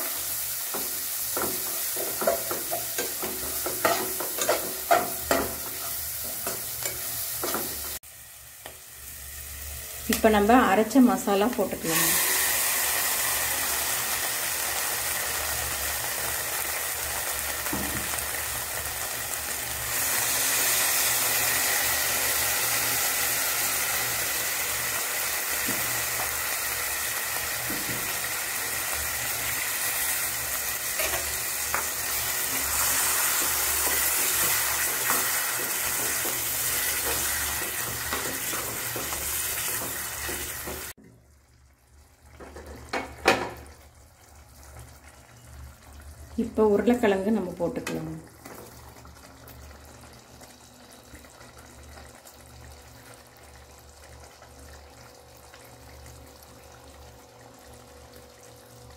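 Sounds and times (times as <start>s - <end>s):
paste sizzling in hot oil: 0.0s - 41.0s.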